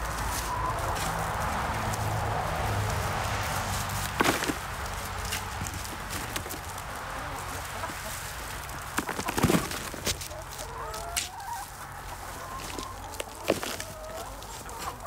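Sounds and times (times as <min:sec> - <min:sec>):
hens clucking: 0:00.0 - 0:15.0
garden fork knocking and scraping: 0:04.1 - 0:06.7.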